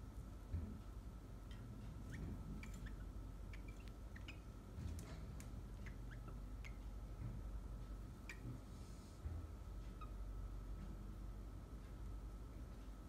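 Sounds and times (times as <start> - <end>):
faint steady hum: 0.0 - 13.0
cockatiel chirping: 1.5 - 4.6, 5.7 - 6.9, 9.9 - 10.2.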